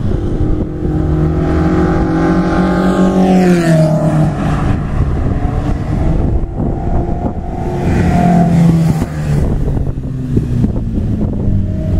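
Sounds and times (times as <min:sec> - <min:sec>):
race car passing by: 0:00.0 - 0:09.9.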